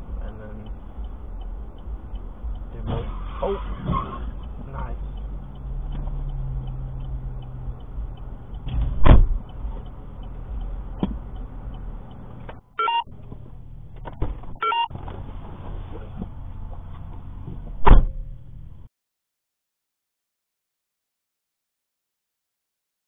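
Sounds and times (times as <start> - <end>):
faint regular ticking: 0.0 - 18.8
car engine humming: 0.0 - 18.9
loud thump: 8.7 - 9.4, 17.8 - 18.3
short electronic beeps: 12.8 - 13.1, 14.6 - 14.9.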